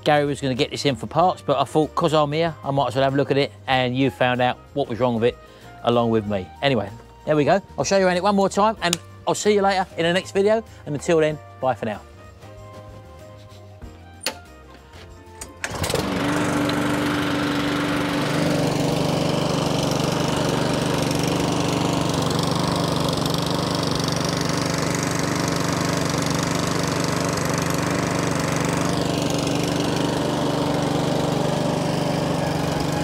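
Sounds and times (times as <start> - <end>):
lawnmower engine running: 15.0 - 33.0.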